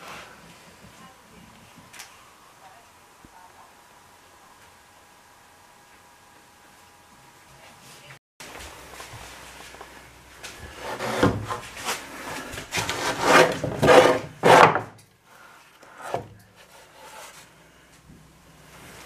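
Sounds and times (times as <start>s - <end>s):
hand scraping rough wood: 10.5s - 15.0s.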